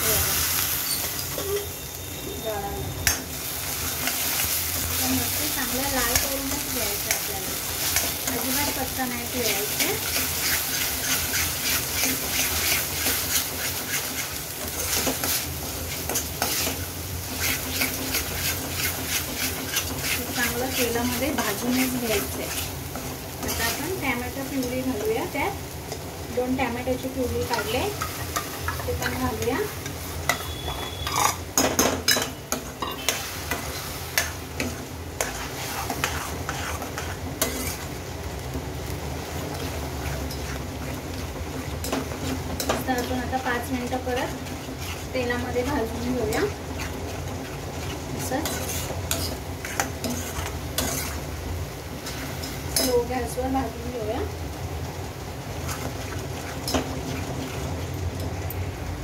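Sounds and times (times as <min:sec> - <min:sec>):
paste sizzling in hot oil: 0:00.0 - 0:59.0
metal spatula scraping a pan: 0:06.1 - 0:24.0, 0:27.5 - 0:37.9, 0:41.8 - 0:51.3.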